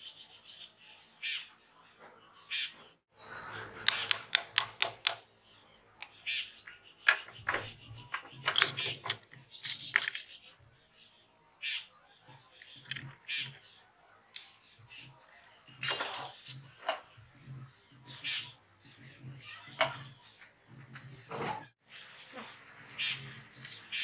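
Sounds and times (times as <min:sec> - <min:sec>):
screwdriver turning screws: 0:03.7 - 0:05.2.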